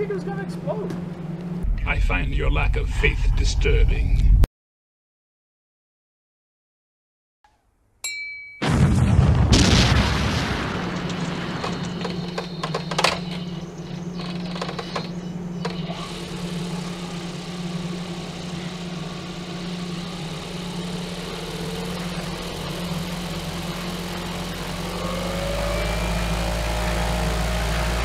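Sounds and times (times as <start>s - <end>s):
explosion blast: 8.6s - 11.6s
electric motor spinning propeller: 11.6s - 28.0s.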